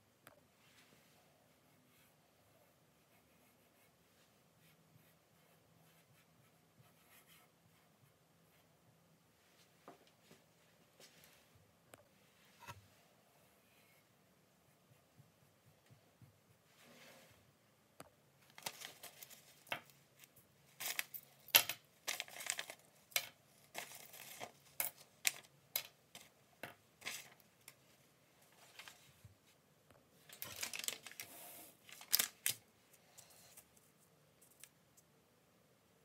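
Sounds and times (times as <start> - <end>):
paper rustling: 18.5 - 19.6, 30.2 - 32.6
keys and coins clinking: 20.8 - 25.9.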